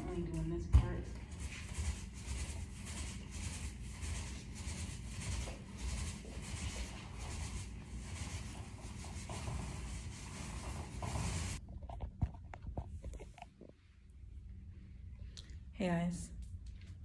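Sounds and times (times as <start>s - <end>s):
rubbing strokes: 1.2s - 11.6s.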